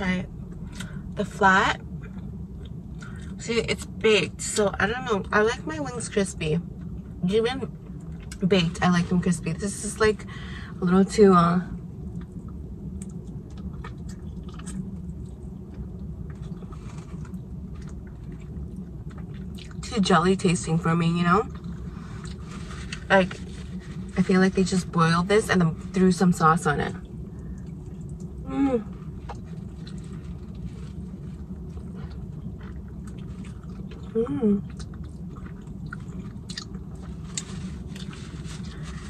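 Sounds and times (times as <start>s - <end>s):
low outdoor background rumble: 0.0s - 39.0s
steady low hum: 0.0s - 39.0s
person chewing: 12.1s - 19.8s, 29.2s - 39.0s
short hummed vocal sound: 28.4s - 29.1s, 34.0s - 34.9s.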